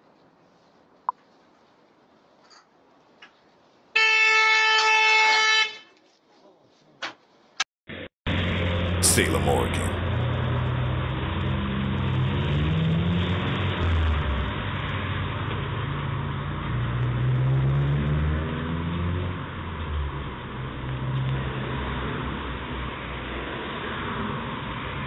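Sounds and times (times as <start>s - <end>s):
road noise rush: 8.3s - 25.0s
vehicles driving past: 8.3s - 25.0s.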